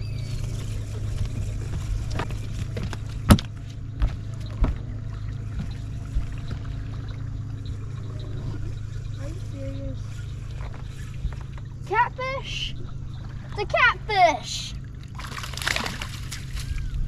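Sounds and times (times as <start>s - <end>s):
steady low hum: 0.0s - 17.0s
knocks on boat deck: 2.1s - 4.9s.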